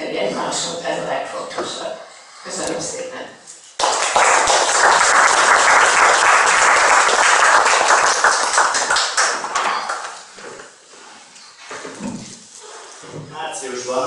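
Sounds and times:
audience applauding: 0:03.8 - 0:10.3.

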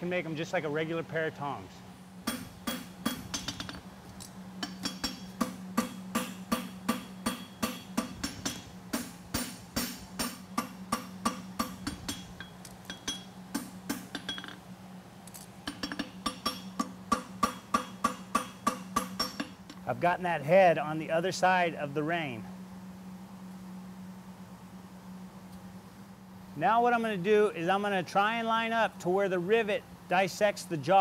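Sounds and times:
hammer ringing on anvil: 0:04.6 - 0:14.6, 0:15.7 - 0:19.6.

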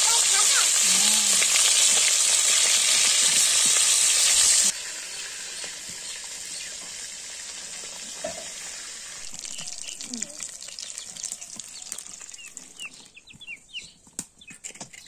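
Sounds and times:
fish sizzling in oil: 0:00.0 - 0:12.6.

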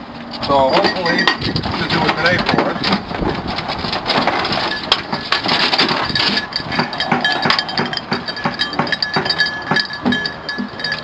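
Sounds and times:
dog collar bells jingling: 0:00.4 - 0:02.0, 0:04.6 - 0:11.0.

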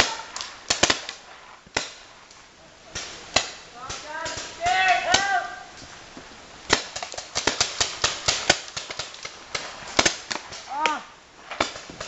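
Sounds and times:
person shouting: 0:00.0 - 0:00.3, 0:04.0 - 0:05.7, 0:10.7 - 0:11.2
paintball markers firing: 0:03.0 - 0:05.4, 0:06.7 - 0:10.7.

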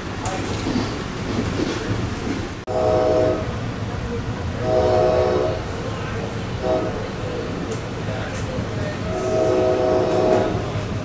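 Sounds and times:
train rumbling: 0:00.0 - 0:11.0
train horn blasts: 0:02.7 - 0:03.6, 0:04.6 - 0:05.8, 0:06.6 - 0:07.2, 0:09.1 - 0:10.8.

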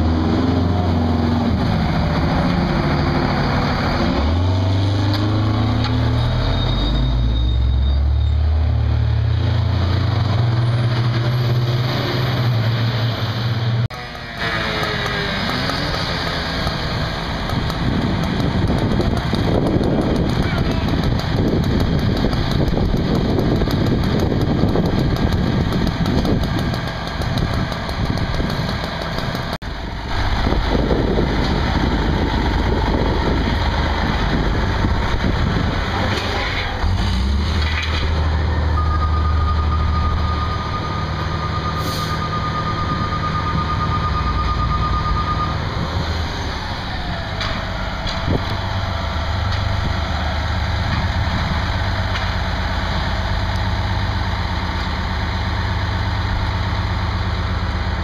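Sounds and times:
diesel engines idling: 0:00.0 - 0:58.0
steady high tone: 0:38.5 - 0:45.9.

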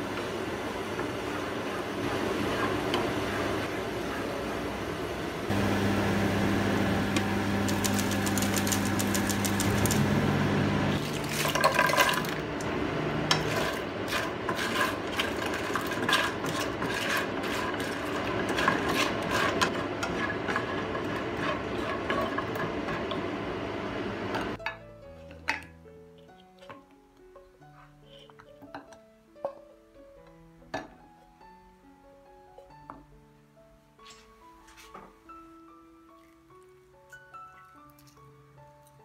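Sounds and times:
food sizzling: 0:00.0 - 0:24.6
spatula scraping frying pan: 0:13.3 - 0:23.1.

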